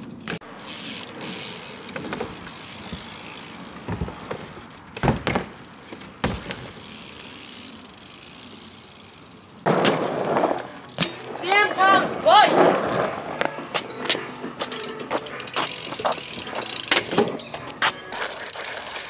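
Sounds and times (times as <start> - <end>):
bike freewheel ticking: 0.0 - 9.6, 14.6 - 17.1, 18.1 - 19.0
bike knocking on plywood ramp: 1.9 - 3.2, 3.8 - 5.6, 6.2 - 6.8.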